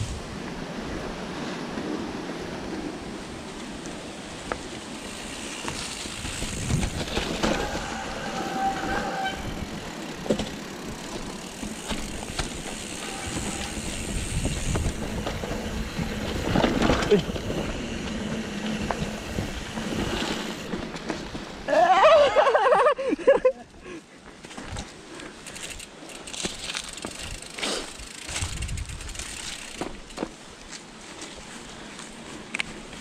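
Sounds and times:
wind on microphone: 0:00.0 - 0:01.2, 0:06.0 - 0:07.9, 0:13.0 - 0:20.6, 0:28.3 - 0:29.4
bike chain and frame rattling: 0:04.6 - 0:21.4, 0:24.6 - 0:30.4
brief squeal: 0:07.6 - 0:09.7.

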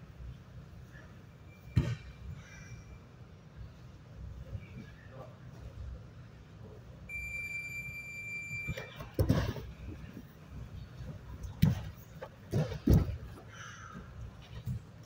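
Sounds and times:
loud thuds: 0:09.0 - 0:10.2, 0:11.5 - 0:13.4.

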